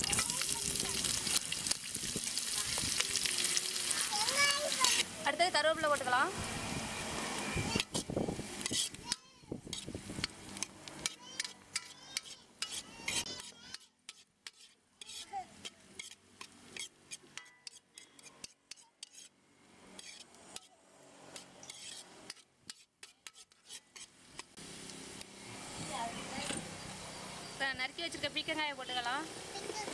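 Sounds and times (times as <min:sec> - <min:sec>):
food sizzling in hot oil: 0:00.0 - 0:09.1
metal ladle scraping a pan: 0:07.8 - 0:09.0, 0:09.7 - 0:09.9, 0:10.5 - 0:19.3, 0:19.9 - 0:20.7, 0:21.3 - 0:24.1.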